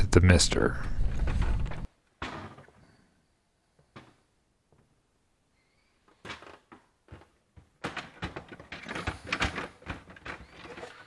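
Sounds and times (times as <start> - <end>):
plastic freezer drawers rattling: 6.3 - 11.0.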